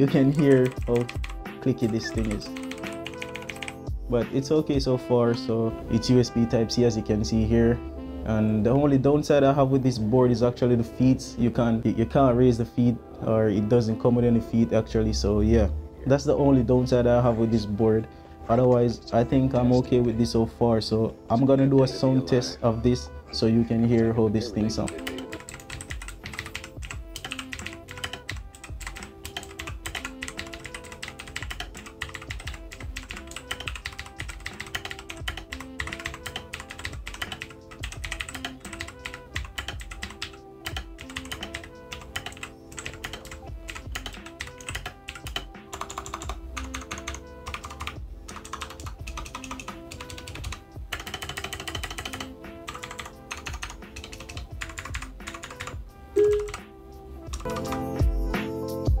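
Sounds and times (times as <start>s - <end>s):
soft background music: 0.0s - 59.0s
clicky mechanical keyboard typing: 0.2s - 3.8s, 25.1s - 56.6s.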